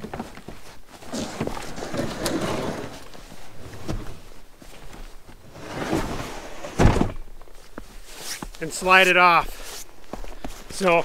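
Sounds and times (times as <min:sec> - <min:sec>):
plastic sled scraping on metal: 0:01.1 - 0:04.2, 0:05.5 - 0:07.2.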